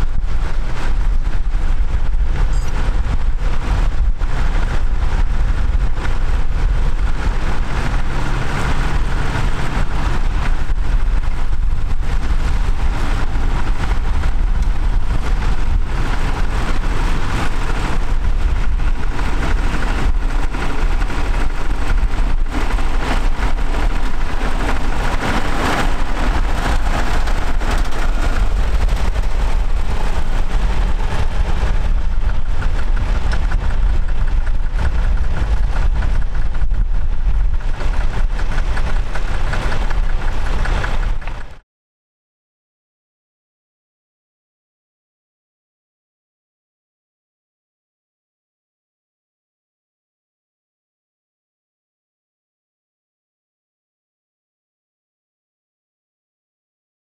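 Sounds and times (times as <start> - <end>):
tractor engine under load: 0.0 - 41.6.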